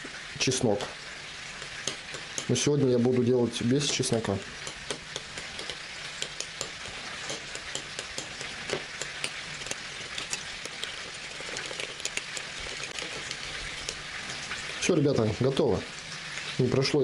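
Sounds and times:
meat sizzling in pan: 0:00.0 - 0:17.0
utensil clicking against bowl: 0:01.6 - 0:02.6, 0:03.8 - 0:14.0.

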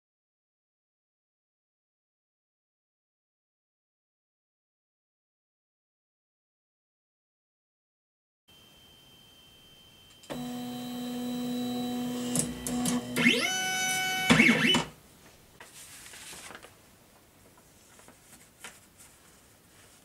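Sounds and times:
stepper motors whining: 0:10.2 - 0:14.9.

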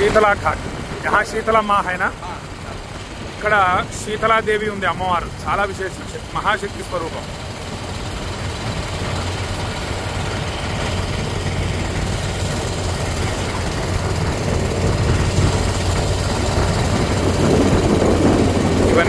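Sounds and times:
motorboat engine hum: 0:00.0 - 0:19.0
water wash: 0:00.0 - 0:19.0.

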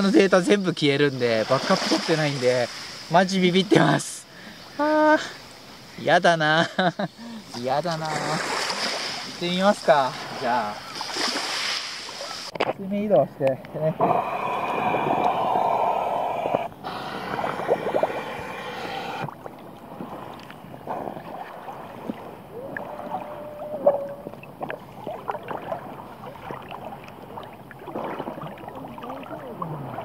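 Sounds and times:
seawater sloshing and lapping: 0:01.2 - 0:03.0, 0:07.4 - 0:12.7, 0:13.9 - 0:30.0
small water splashes: 0:01.2 - 0:03.1, 0:07.3 - 0:30.0.

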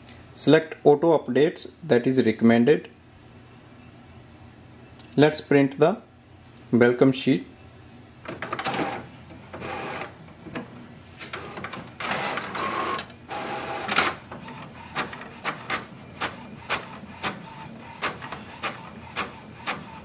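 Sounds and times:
inkjet printer printing: 0:08.3 - 0:20.0.

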